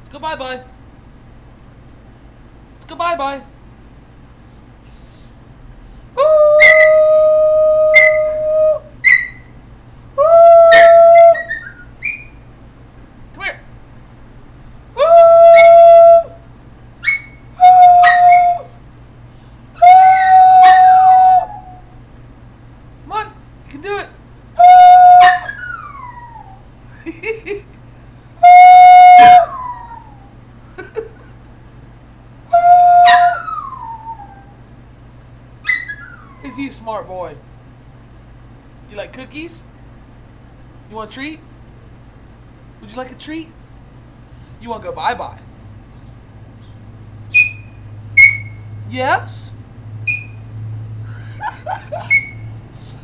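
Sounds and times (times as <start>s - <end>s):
small dog howling: 6.2s - 9.5s, 10.2s - 12.3s, 15.0s - 16.4s, 17.0s - 18.8s, 19.8s - 22.0s, 24.6s - 26.7s, 28.4s - 30.4s, 32.5s - 34.6s, 35.6s - 36.7s
dog yelps and whimpers: 6.6s - 7.0s, 7.9s - 8.4s, 9.0s - 9.5s, 10.7s - 12.3s, 15.4s - 15.9s, 17.0s - 18.7s, 19.8s - 21.8s, 25.2s - 26.7s, 29.4s - 30.3s, 32.8s - 34.6s, 35.6s - 36.7s, 47.3s - 48.6s, 51.9s - 52.5s.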